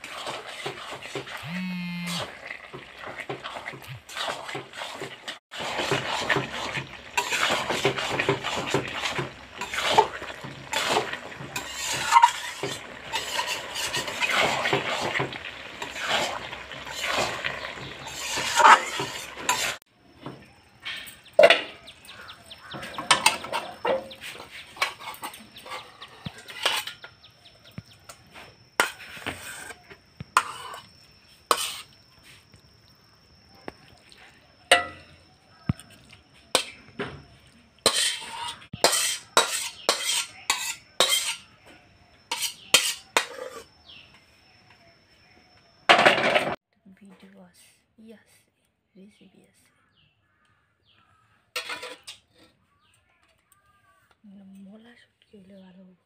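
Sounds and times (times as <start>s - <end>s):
metal spatula scraping wok: 0.0s - 19.8s, 22.1s - 27.3s, 28.2s - 32.4s, 37.8s - 41.7s, 42.3s - 44.0s, 51.5s - 52.7s.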